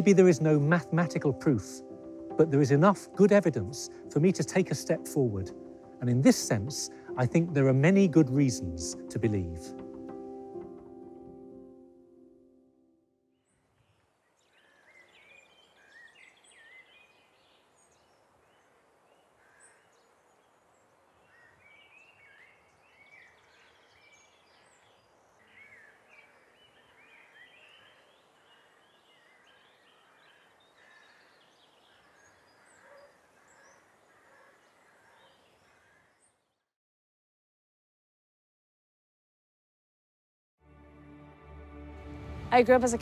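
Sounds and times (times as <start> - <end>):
soft outdoor hiss: 0.0 - 11.8, 13.4 - 36.6
birds chirping and warbling: 13.5 - 36.7.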